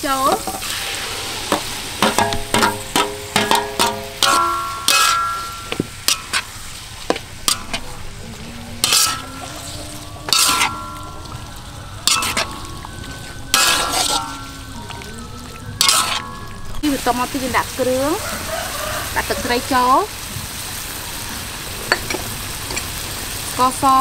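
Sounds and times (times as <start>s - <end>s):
food sizzling: 0.0s - 24.0s
metal spatula scraping a wok: 0.4s - 11.4s, 12.0s - 14.7s, 15.8s - 16.6s.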